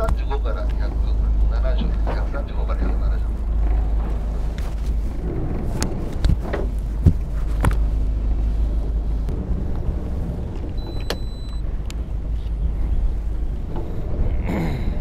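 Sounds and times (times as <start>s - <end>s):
boat engine rumble: 0.0s - 15.0s
sharp knocks and clicks: 1.4s - 7.9s
wind on microphone: 3.3s - 15.0s.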